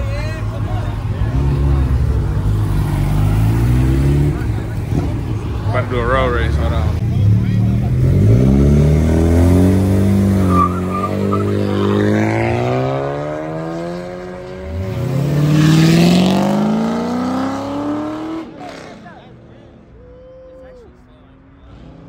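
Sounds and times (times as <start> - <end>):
car engines revving hard: 0.0 - 19.8, 21.5 - 22.0
nearby car engine revving: 1.2 - 19.1
tire squeal: 10.3 - 11.9.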